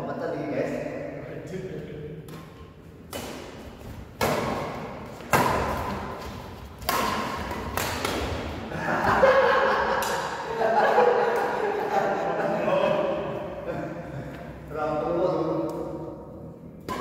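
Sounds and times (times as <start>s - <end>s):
rackets hitting shuttlecock: 2.2s - 9.2s, 9.8s - 10.5s, 16.8s - 17.0s.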